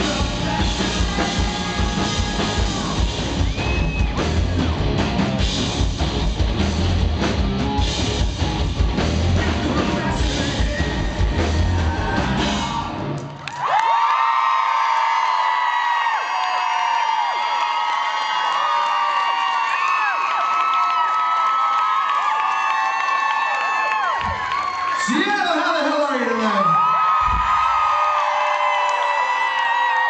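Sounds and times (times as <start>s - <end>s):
man singing lead vocal: 0.0s - 3.3s, 9.2s - 13.1s
audience cheering and screaming: 0.0s - 5.2s, 10.0s - 30.0s
live rock band playing: 0.0s - 13.2s.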